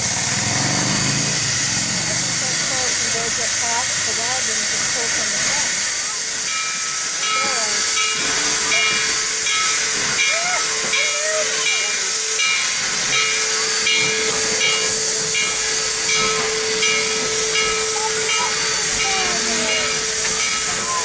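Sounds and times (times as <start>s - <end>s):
steam locomotive hissing steam: 0.0s - 21.0s
rhythmic pulse: 6.2s - 21.0s.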